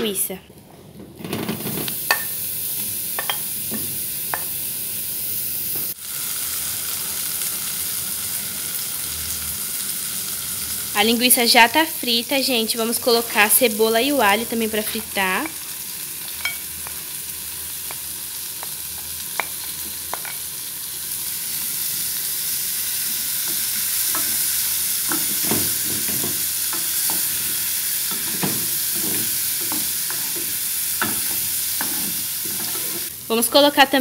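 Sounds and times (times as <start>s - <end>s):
food sizzling in a pan: 1.5s - 34.0s
wooden spoon scraping a pan: 25.1s - 33.1s.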